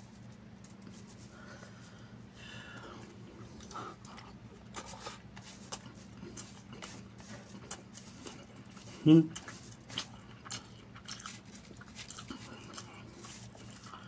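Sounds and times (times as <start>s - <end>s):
low steady hum: 0.0s - 14.0s
chewing and lip smacks: 2.8s - 14.0s.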